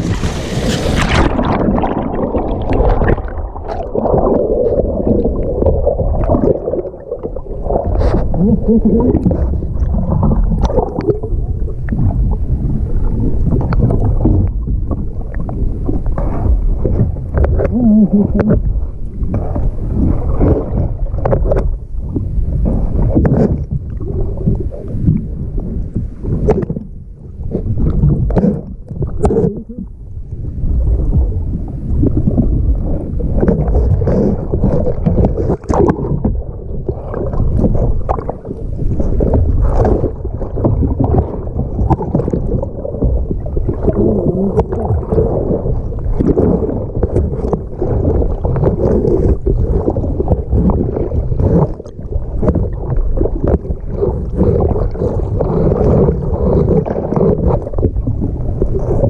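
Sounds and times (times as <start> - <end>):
river water rushing and splashing: 0.0 - 4.3
wind buffeting microphone: 0.0 - 6.8.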